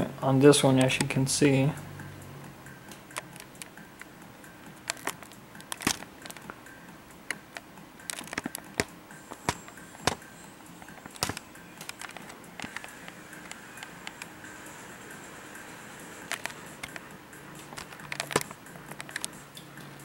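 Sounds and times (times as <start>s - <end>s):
handling clicks and crackles: 4.8s - 6.6s, 7.3s - 10.2s, 10.8s - 14.3s, 16.3s - 19.7s.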